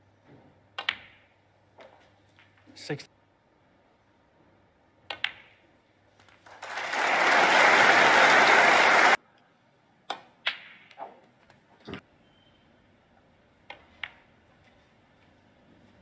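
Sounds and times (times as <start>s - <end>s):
snooker balls clicking: 0.8s - 2.7s, 5.0s - 5.6s
crowd applause: 6.4s - 9.2s.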